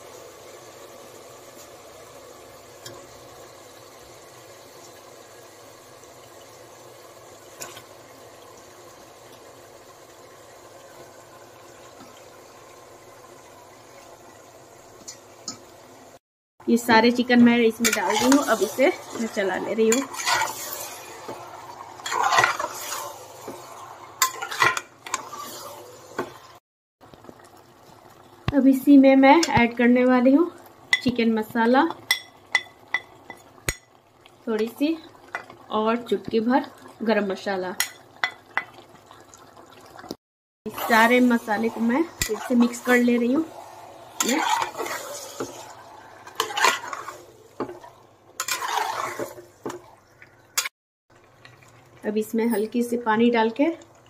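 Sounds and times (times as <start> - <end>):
spatula scraping pot: 17.8 - 26.5, 40.7 - 49.9.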